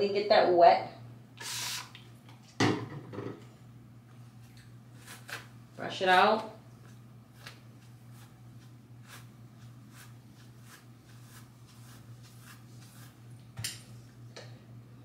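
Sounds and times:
steady low hum: 0.0s - 15.0s
hairbrush swishing through hair: 7.4s - 13.4s.

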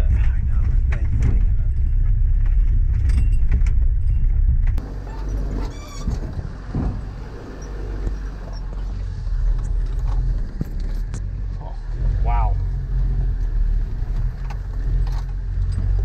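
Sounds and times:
vehicle body rattles and clicks: 0.0s - 16.0s
vehicle engine rumble: 0.0s - 16.0s
branches brushing vehicle: 4.8s - 16.0s.

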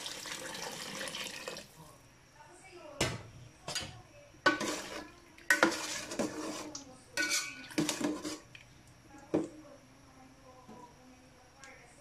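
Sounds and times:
ladle scraping pot: 3.7s - 8.6s.

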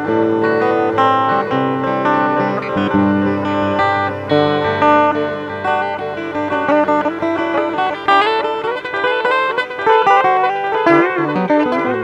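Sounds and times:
guitar playing picked melody: 0.0s - 12.0s.

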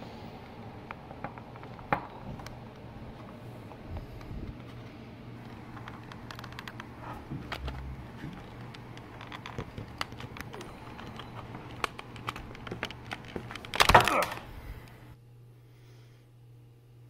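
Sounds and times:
plastic clatter: 5.4s - 14.5s.

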